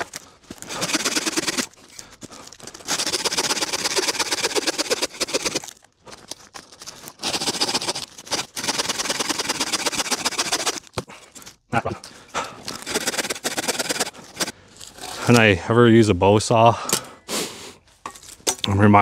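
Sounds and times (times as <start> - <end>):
bow saw cutting branch: 0.7 - 1.7, 2.9 - 5.7, 7.2 - 10.8, 12.8 - 14.5.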